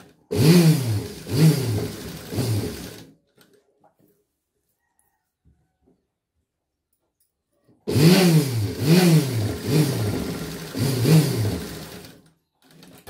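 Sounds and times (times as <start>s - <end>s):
sewing machine stitching: 0.0s - 3.5s, 7.9s - 13.0s.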